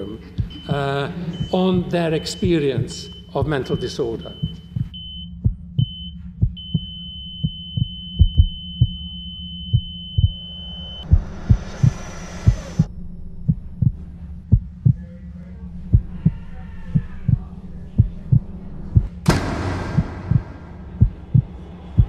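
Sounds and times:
heartbeat thudding: 0.0s - 15.1s, 15.8s - 22.0s
low steady drone: 0.0s - 22.0s
hissing swell: 10.3s - 12.9s.

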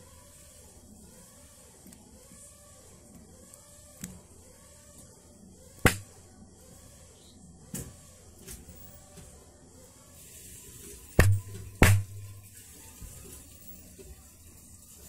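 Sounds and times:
sharp hand claps: 5.9s - 6.1s.

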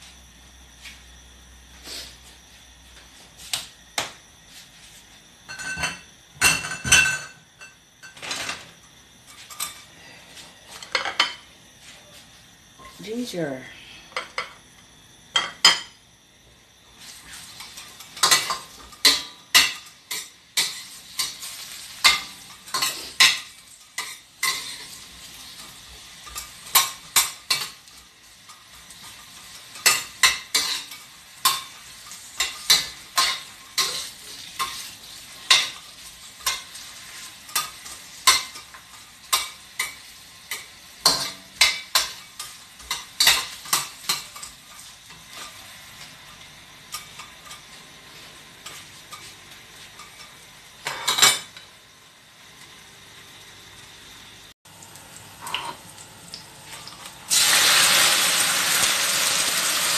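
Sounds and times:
ginger sizzling in hot oil: 16.8s - 59.9s
spatula scraping and clacking on wok: 17.6s - 25.0s, 25.6s - 31.8s, 32.4s - 45.6s.

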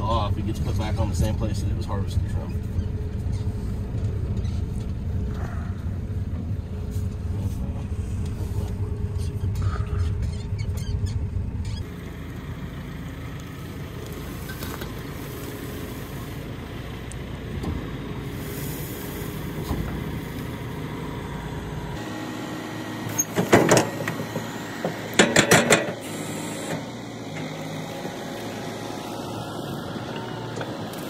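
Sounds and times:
vehicle engine and road rumble: 0.0s - 31.0s
sharp clattering bursts: 25.1s - 26.0s.

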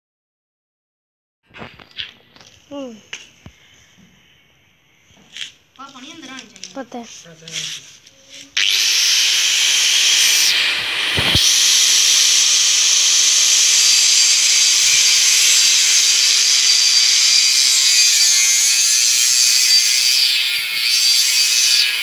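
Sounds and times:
angle grinder cutting steel: 8.4s - 22.0s.

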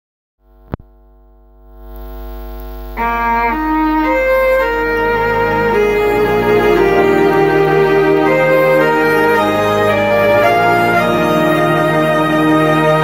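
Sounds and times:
held chord: 2.9s - 13.0s
slow melody of held notes: 3.0s - 13.0s.

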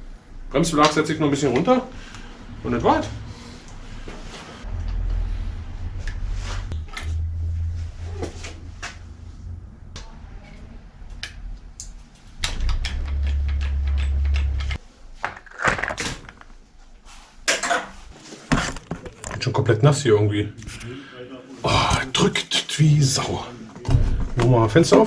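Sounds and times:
low hum: 2.0s - 14.8s.

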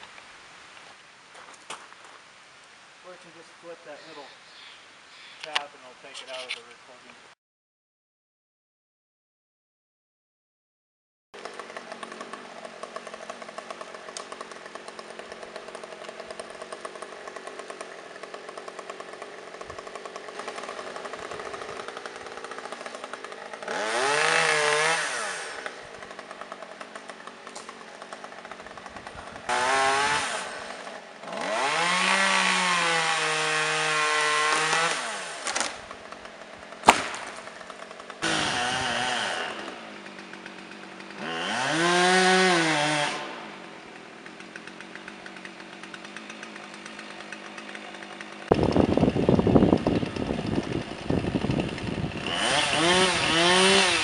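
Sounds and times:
chainsaw idling and revving: 11.4s - 54.0s
sharp crack: 34.4s - 38.4s.

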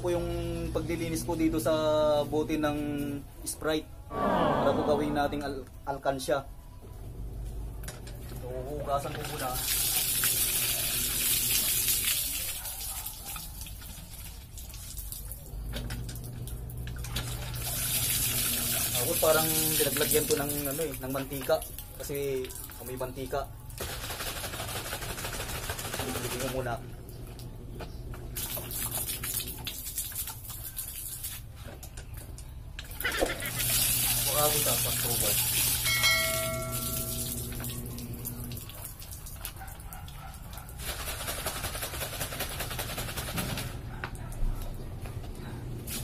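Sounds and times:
water gushing from hand pump: 8.9s - 15.1s, 17.0s - 23.0s, 33.1s - 37.7s
water splashing on ground: 28.3s - 31.5s.

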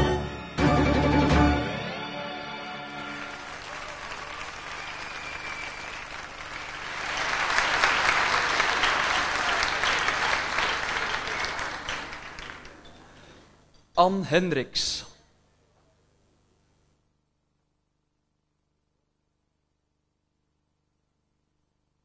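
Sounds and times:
music: 0.0s - 6.7s
audience applauding: 2.9s - 13.2s.

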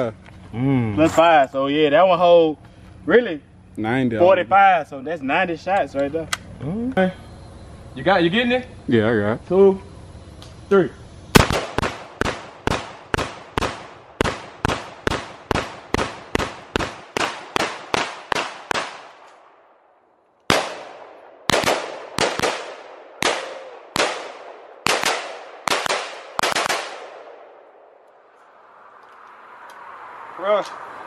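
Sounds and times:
rapid gunfire with echo: 11.4s - 19.2s, 20.5s - 27.6s.

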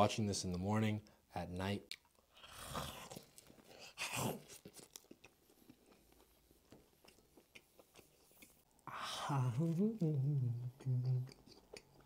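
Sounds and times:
quiet chewing: 1.9s - 8.9s, 10.7s - 12.0s.

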